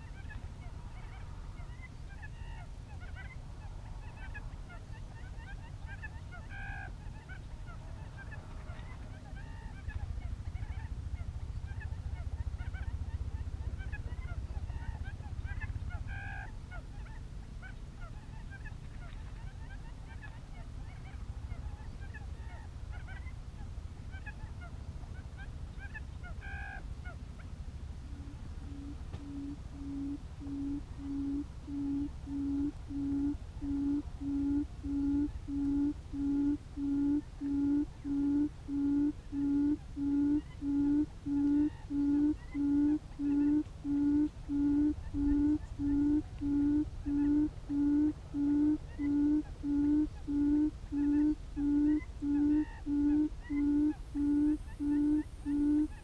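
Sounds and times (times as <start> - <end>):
quail call hoots from speaker: 28.1 - 56.0
faint small-bird chirps: 28.2 - 56.0.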